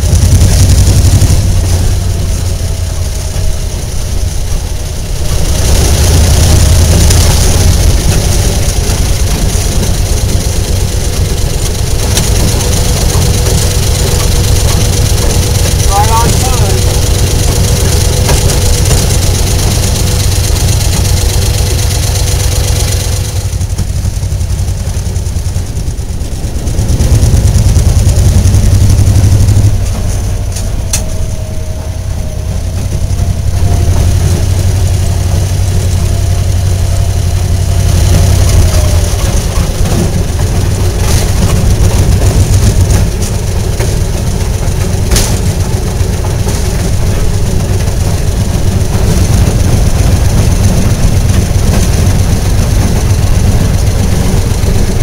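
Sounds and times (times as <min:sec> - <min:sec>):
motorcar engine running: 0:00.0 - 0:55.0.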